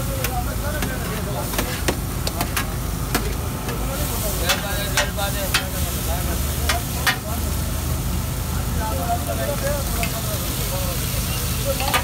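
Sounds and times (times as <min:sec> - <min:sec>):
frying sizzle: 0:00.0 - 0:12.0
metal spatula clanking on griddle: 0:04.4 - 0:05.8, 0:06.6 - 0:07.3, 0:11.8 - 0:12.0.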